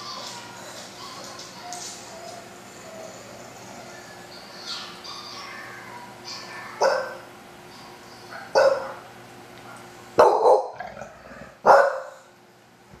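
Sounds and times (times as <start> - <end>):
dog barking: 6.8 - 7.3, 8.3 - 10.9, 11.6 - 12.3.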